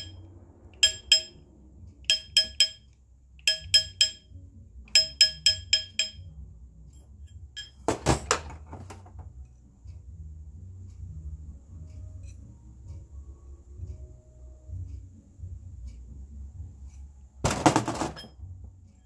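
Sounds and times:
hammer tapping metal ring: 0:00.0 - 0:00.2, 0:00.8 - 0:01.4, 0:02.0 - 0:06.4, 0:07.3 - 0:08.1.

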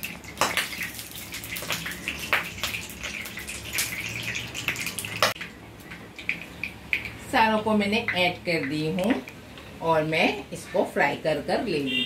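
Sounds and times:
oil sizzling in a pan: 0:00.0 - 0:05.5
oil popping: 0:00.0 - 0:07.3.

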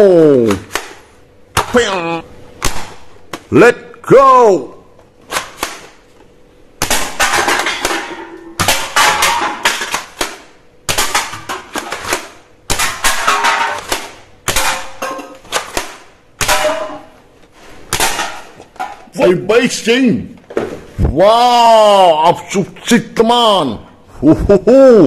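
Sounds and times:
darts knocking over cans: 0:00.4 - 0:01.8, 0:05.2 - 0:06.1, 0:06.8 - 0:17.2, 0:17.8 - 0:19.1.

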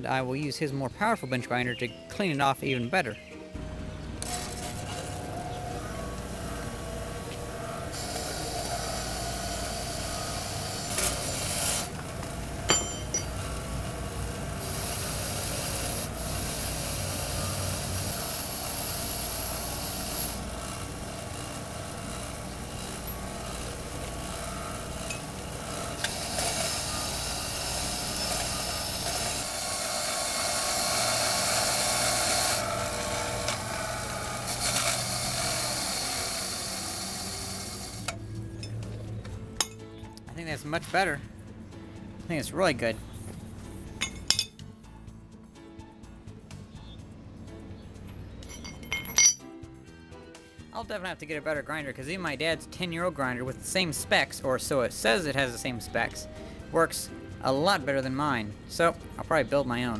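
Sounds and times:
grinder motor hum: 0:03.6 - 0:38.4
metal grinding on grinder wheel: 0:04.2 - 0:38.2.

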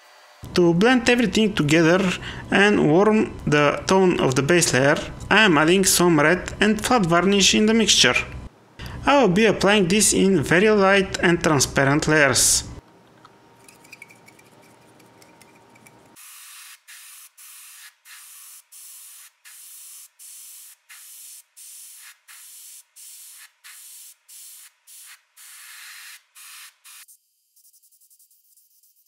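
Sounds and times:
airbrush spraying hiss: 0:16.2 - 0:29.0.

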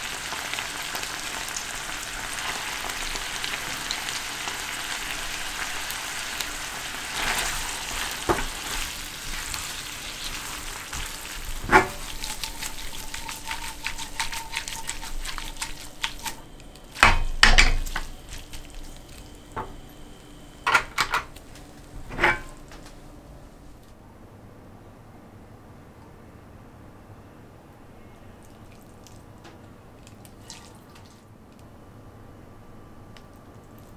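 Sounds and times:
pasta sizzling in a frying pan: 0:00.0 - 0:22.6
pan knocking against stove: 0:11.6 - 0:12.1, 0:17.0 - 0:18.1, 0:22.1 - 0:22.6.

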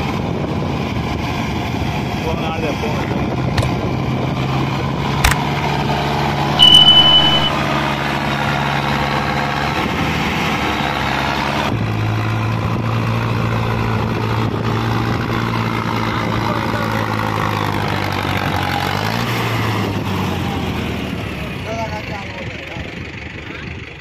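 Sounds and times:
tractor diesel engine under load: 0:00.0 - 0:24.0
high beep: 0:06.6 - 0:07.7.

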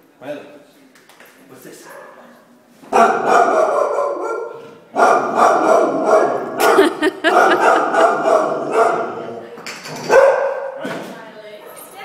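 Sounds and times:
dog barking: 0:01.8 - 0:09.4, 0:10.1 - 0:10.8.

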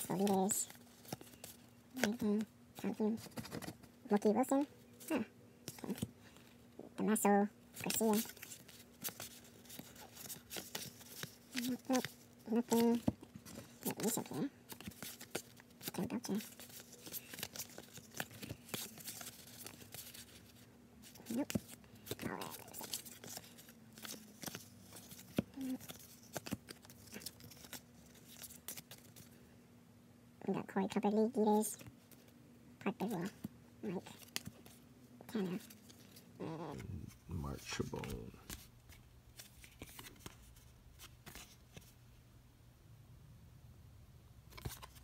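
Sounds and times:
card handling ticks and rustles: 0:00.0 - 0:29.4, 0:31.6 - 0:32.4, 0:33.0 - 0:36.3, 0:37.0 - 0:42.0, 0:44.5 - 0:45.0
cards flicking and snapping: 0:21.1 - 0:29.3.

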